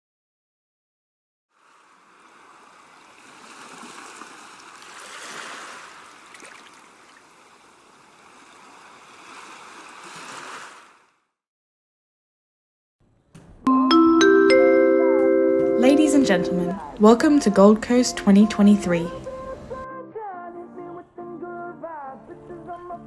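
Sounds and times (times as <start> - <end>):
ocean waves washing onto beach: 1.6 - 11.0.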